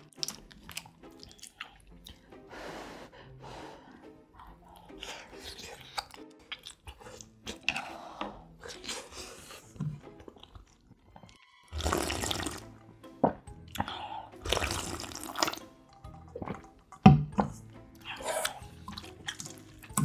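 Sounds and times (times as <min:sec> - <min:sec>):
slurping broth from bowl: 0:11.7 - 0:19.9.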